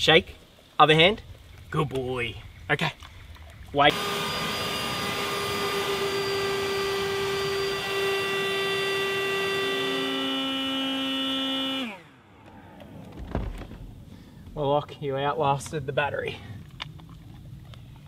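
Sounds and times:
electric motor whine: 0:03.9 - 0:13.6.

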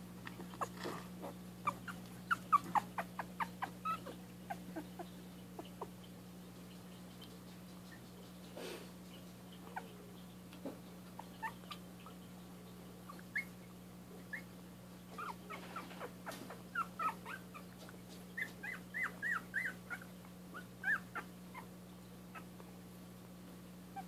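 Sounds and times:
steady low hum: 0:00.0 - 0:24.0
puppies squeaking and whimpering: 0:00.6 - 0:06.2, 0:11.1 - 0:12.4, 0:13.0 - 0:22.6.

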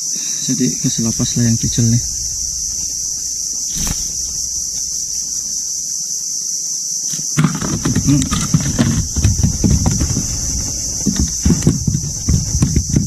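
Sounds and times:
high-pitched insect buzz: 0:00.0 - 0:09.2
knocks and thumps of fish handling: 0:01.1 - 0:05.6, 0:07.4 - 0:13.0.

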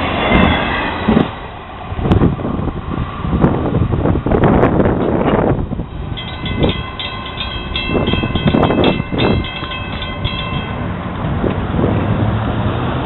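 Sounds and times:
rushing wind gusts: 0:00.0 - 0:13.0
crossing warning bell ringing: 0:00.2 - 0:01.2, 0:05.3 - 0:11.4.

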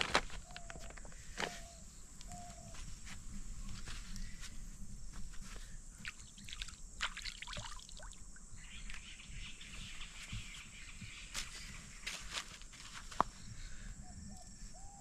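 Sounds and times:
insect drone: 0:00.0 - 0:15.0
birds chirping: 0:00.4 - 0:05.0, 0:05.9 - 0:12.5.

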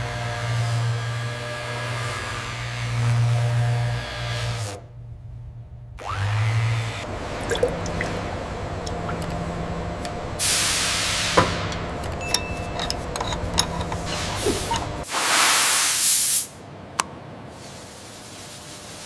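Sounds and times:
fluid pouring through a funnel: 0:07.1 - 0:09.5.

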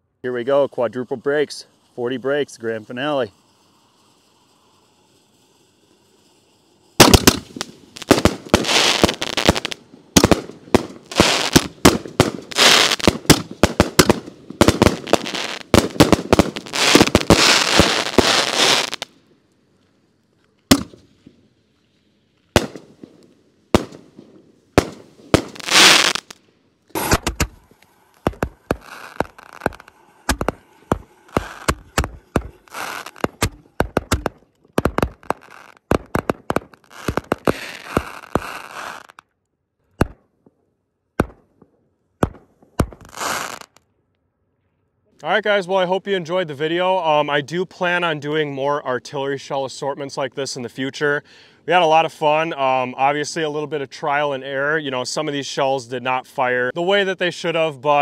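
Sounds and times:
fireworks bursting: 0:00.3 - 0:19.5, 0:20.6 - 0:21.6, 0:22.3 - 0:39.2, 0:41.2 - 0:43.8.

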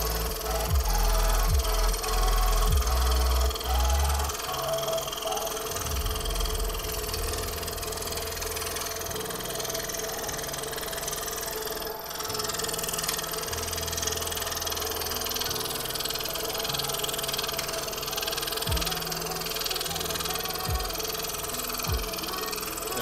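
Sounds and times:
background music: 0:00.0 - 0:23.0
scroll saw cutting wood: 0:00.0 - 0:23.0.

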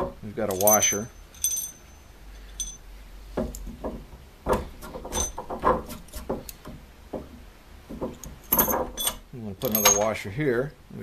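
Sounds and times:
metal knocking and scraping on wood: 0:00.0 - 0:01.7, 0:02.6 - 0:10.2
short metallic clinks: 0:00.5 - 0:02.8, 0:08.5 - 0:10.2.

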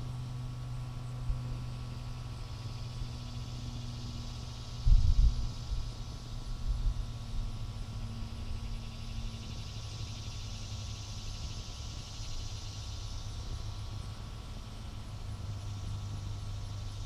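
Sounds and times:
steady high hiss: 0:00.0 - 0:17.0
wind buffeting microphone: 0:04.8 - 0:05.9.

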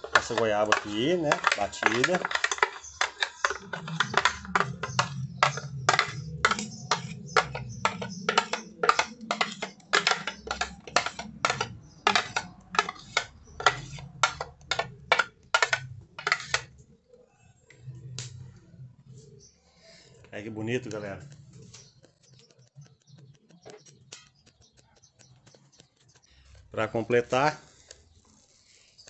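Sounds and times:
tapping on plastic blender jug: 0:00.0 - 0:16.7.

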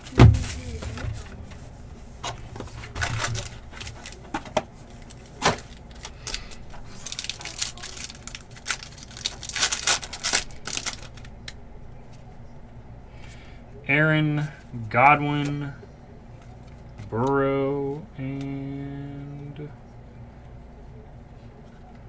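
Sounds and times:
card packs rustling: 0:00.0 - 0:11.6
foil pack crinkling and tearing: 0:02.6 - 0:11.6.

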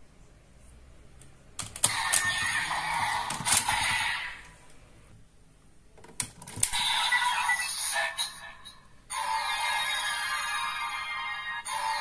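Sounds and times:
electronic toy sound: 0:06.7 - 0:08.4.

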